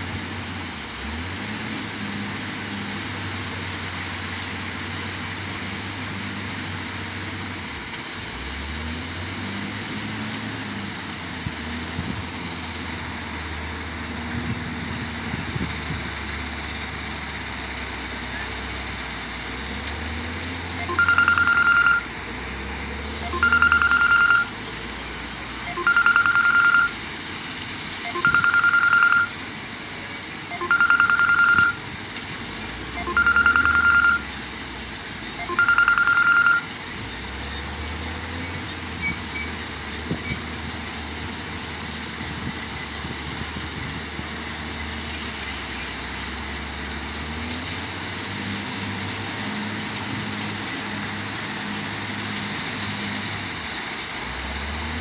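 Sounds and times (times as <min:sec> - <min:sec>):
diesel engines running: 0:00.0 - 0:55.0
backup alarm beeping: 0:20.8 - 0:22.1, 0:23.2 - 0:24.6, 0:25.7 - 0:27.0, 0:28.0 - 0:29.4, 0:30.5 - 0:31.8, 0:33.0 - 0:34.3, 0:35.4 - 0:36.8.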